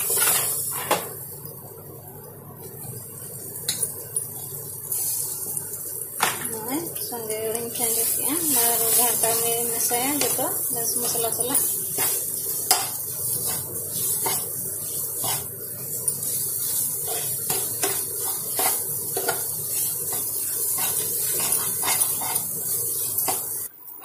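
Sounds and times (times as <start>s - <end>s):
frying hiss: 0.0s - 24.0s
metal spatula scraping frying pan: 11.0s - 15.5s, 16.3s - 23.5s.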